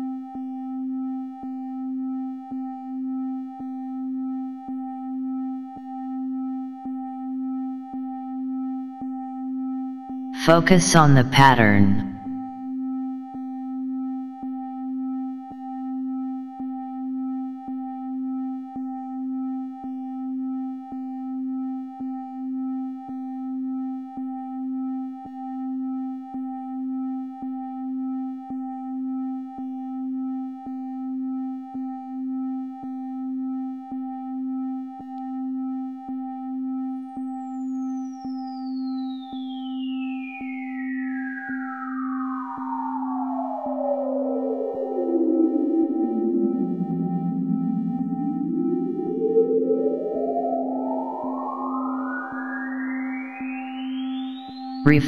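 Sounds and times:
high whistling tone gliding down: 42.2s - 54.3s.

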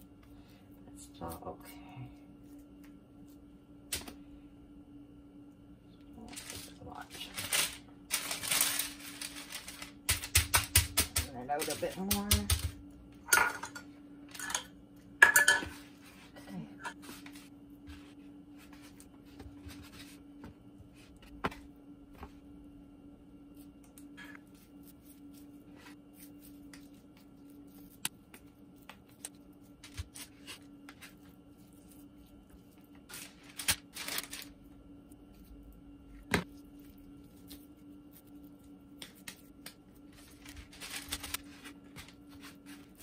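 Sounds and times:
hands patting meat: 10.0s - 12.8s.

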